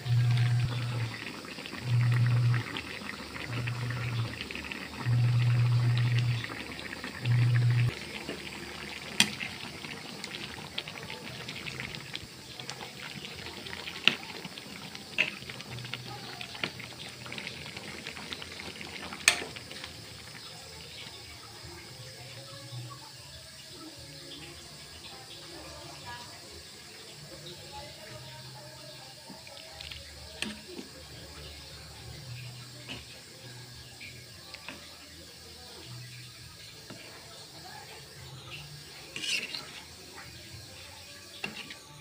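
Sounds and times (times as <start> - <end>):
soup simmering and bubbling: 0.0 - 42.0
loud low hum: 3.5 - 6.5
metal ladle clicking on pot: 19.2 - 19.5.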